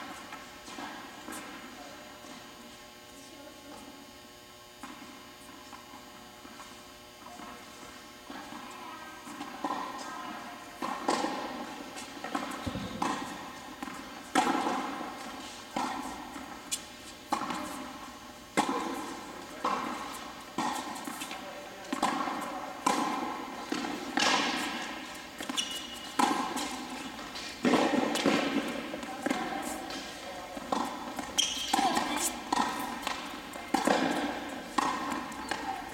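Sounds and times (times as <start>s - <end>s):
tennis ball bouncing: 7.3s - 35.9s
racket striking tennis ball: 9.3s - 35.9s.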